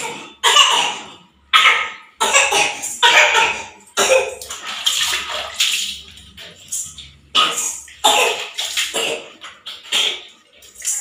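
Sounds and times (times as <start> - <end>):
water splashing onto tiled floor: 2.3 - 11.0.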